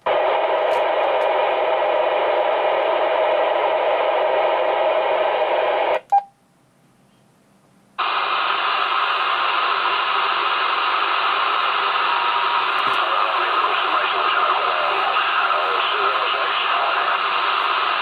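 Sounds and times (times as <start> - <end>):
radio static hiss: 0.0 - 6.1, 8.0 - 18.0.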